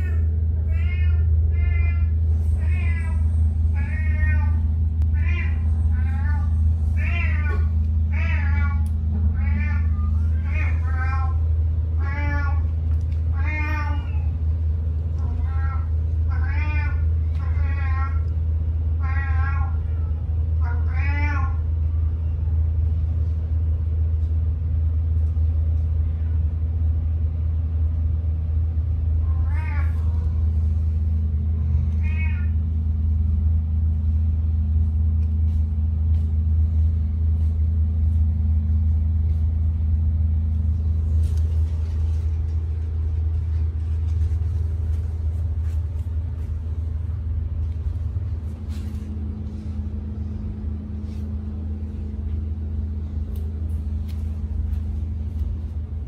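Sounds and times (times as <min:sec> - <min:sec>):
cat meowing: 0:00.0 - 0:14.4, 0:15.2 - 0:18.3, 0:19.0 - 0:21.7, 0:29.2 - 0:30.4, 0:31.8 - 0:32.6
loud steady low hum: 0:00.0 - 0:56.0.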